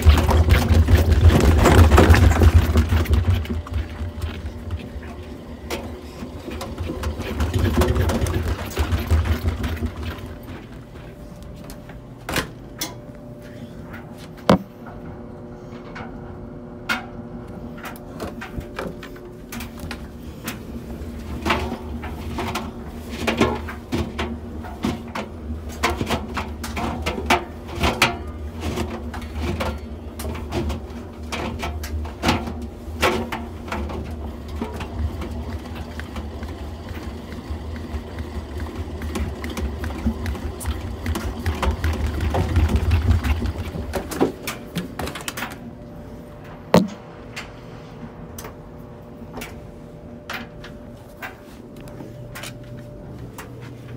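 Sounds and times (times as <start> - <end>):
washing machine drum rumbling: 0.0 - 11.0, 18.3 - 45.6.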